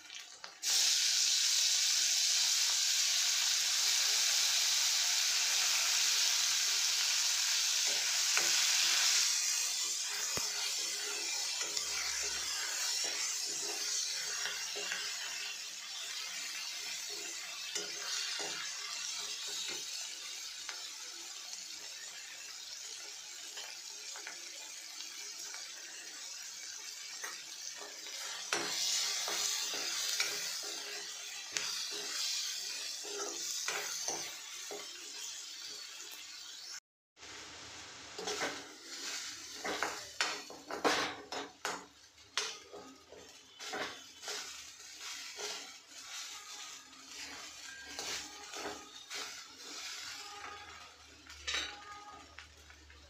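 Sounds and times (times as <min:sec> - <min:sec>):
vegetables sizzling in hot oil: 0:00.0 - 0:53.0
spoon scraping and tapping pan: 0:27.2 - 0:35.2, 0:38.2 - 0:52.2.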